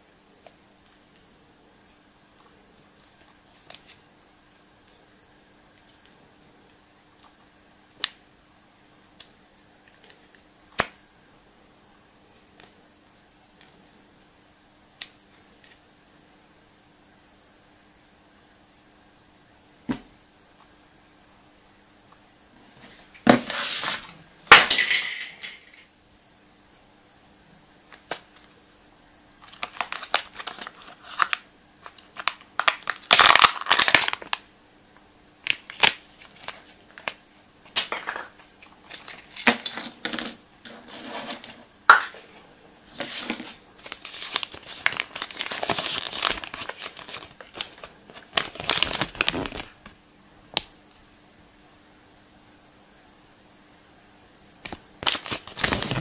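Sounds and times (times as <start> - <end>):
wrapper crinkling: 29.4 - 34.4, 43.0 - 49.8, 55.0 - 56.0.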